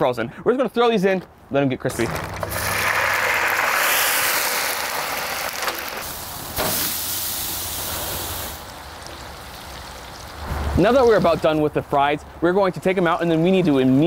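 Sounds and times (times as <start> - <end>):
fries sizzling in hot oil: 2.2 - 11.4.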